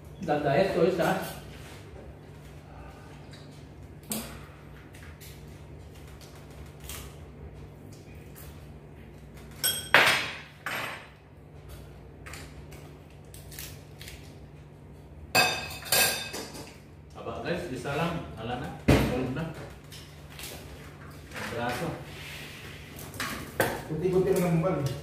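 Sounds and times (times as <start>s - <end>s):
steady low hum: 0.0s - 25.0s
dishes and utensils clattering: 9.5s - 11.2s, 15.4s - 16.8s.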